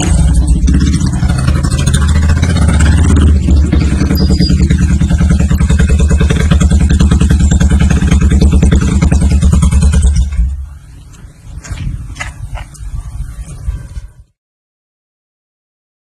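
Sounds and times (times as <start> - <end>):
motorcycle engine thumping: 0.0 - 12.7.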